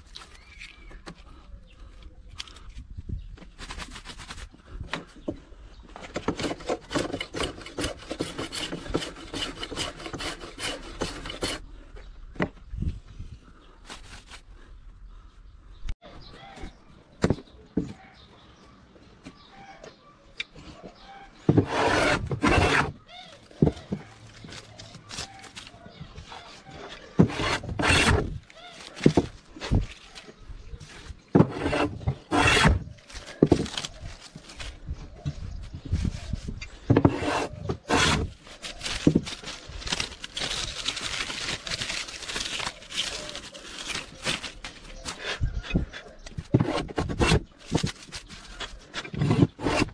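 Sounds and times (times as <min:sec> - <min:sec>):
hand tool rubbing across wood: 0:06.4 - 0:11.6, 0:21.5 - 0:23.0, 0:26.4 - 0:28.4, 0:31.4 - 0:32.8, 0:36.9 - 0:38.7, 0:48.5 - 0:49.9.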